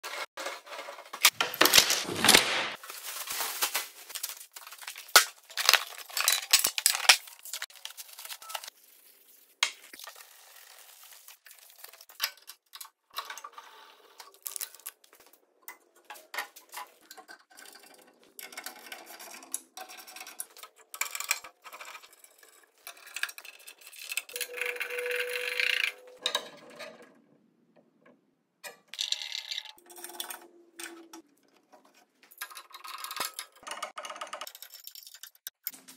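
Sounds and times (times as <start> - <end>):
metal parts knocking and clinking: 28.6 - 35.8.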